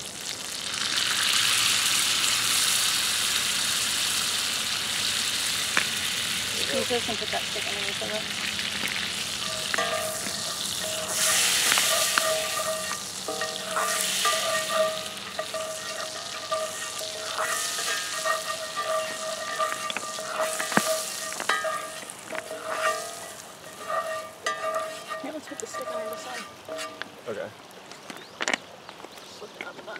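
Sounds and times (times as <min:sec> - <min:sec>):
butter sizzling in a skillet: 0:00.0 - 0:27.8.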